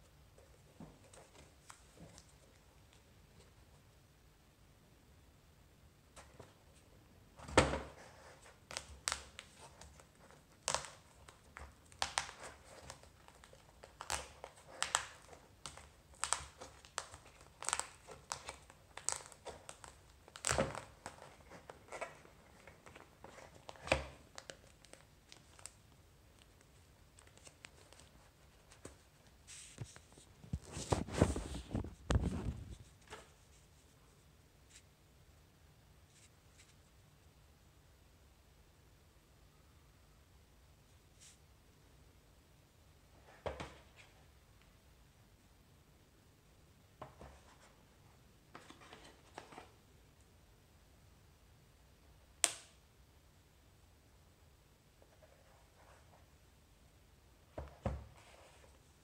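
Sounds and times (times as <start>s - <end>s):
tissue paper crinkling: 8.6s - 25.8s.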